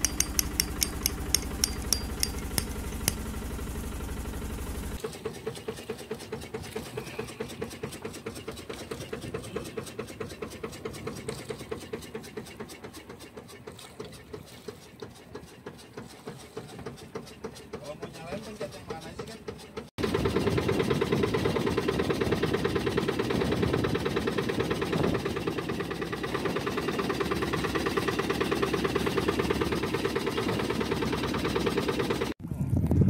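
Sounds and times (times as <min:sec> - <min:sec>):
sharp clicks: 0:00.0 - 0:03.2
boat engine running: 0:00.0 - 0:32.4.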